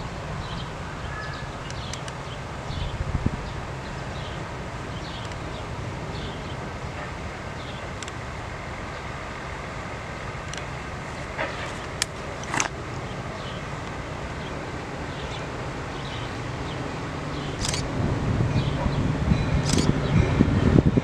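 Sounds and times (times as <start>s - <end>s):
diesel locomotive rumble: 0.0s - 21.0s
sharp clicks: 5.2s - 5.4s, 8.0s - 8.2s, 17.6s - 17.9s, 19.6s - 19.9s.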